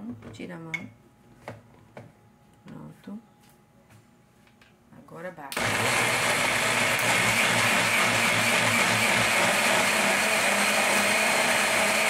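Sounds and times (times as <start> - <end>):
blender motor running: 5.6 - 12.0.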